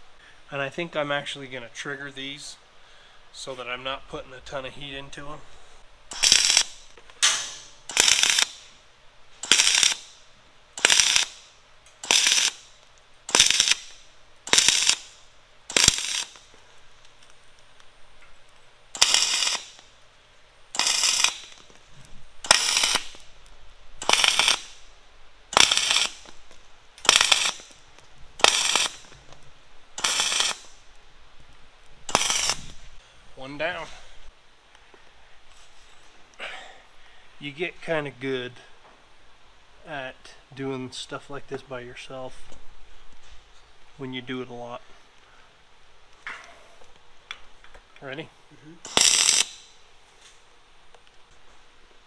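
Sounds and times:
welder arc crackling: 3.4s - 35.8s, 46.8s - 51.5s.

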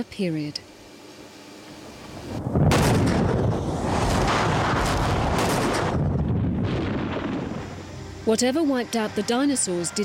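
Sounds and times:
explosive rumble with crackles: 2.0s - 7.9s.

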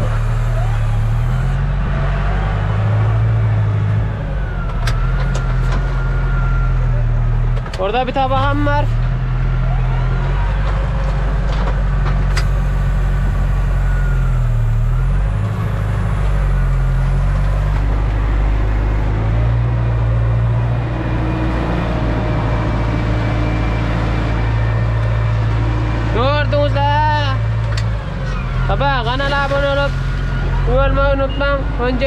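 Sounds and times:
tractor diesel engine running: 0.0s - 32.0s.

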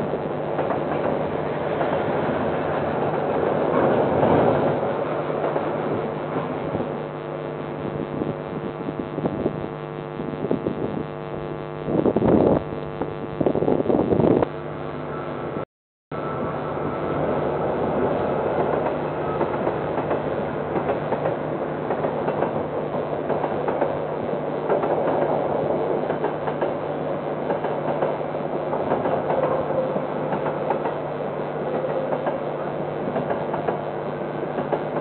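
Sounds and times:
passing train rushing noise: 0.0s - 7.0s, 16.2s - 35.0s
diesel locomotive engine droning: 0.0s - 35.0s.

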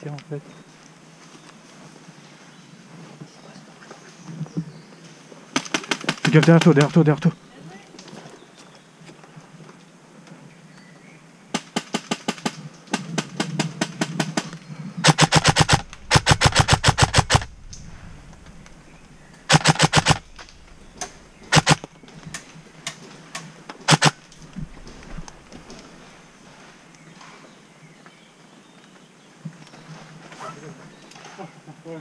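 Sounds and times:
airsoft rifles firing bursts: 11.6s - 17.5s, 19.5s - 22.5s, 23.9s - 25.5s.

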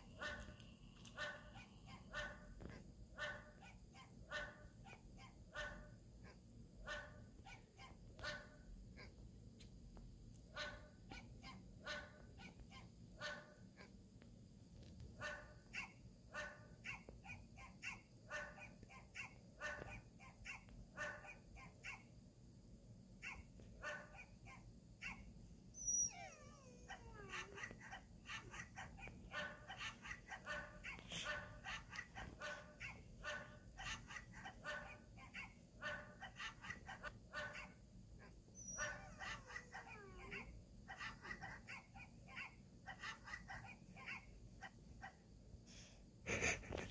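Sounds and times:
recorded dog barks from phone speaker: 0.1s - 9.1s, 10.5s - 13.9s, 15.2s - 22.1s, 23.2s - 25.2s, 26.6s - 37.8s, 38.7s - 45.2s.

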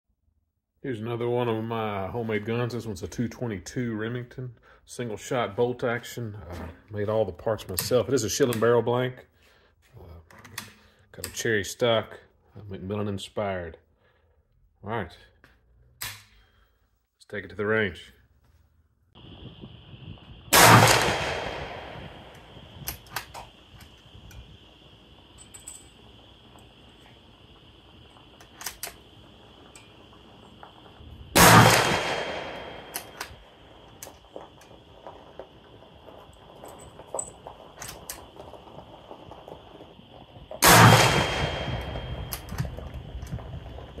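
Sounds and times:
rifle bolt metallic clicks: 16.0s - 16.4s, 22.8s - 23.4s, 28.4s - 29.0s, 31.4s - 33.4s
rifle shot echoing: 20.5s - 23.7s, 31.3s - 33.7s, 40.6s - 43.0s.

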